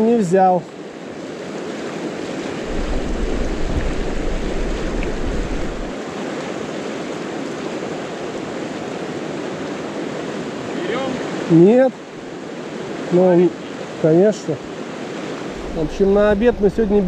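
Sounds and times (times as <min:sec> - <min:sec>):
river rushing over riffle: 0:01.2 - 0:17.0
deep rumble: 0:02.7 - 0:05.9.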